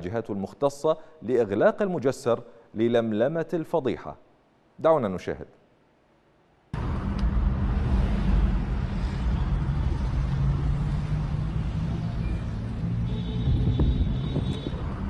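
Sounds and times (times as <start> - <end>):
car engine and road rumble: 6.8 - 15.0.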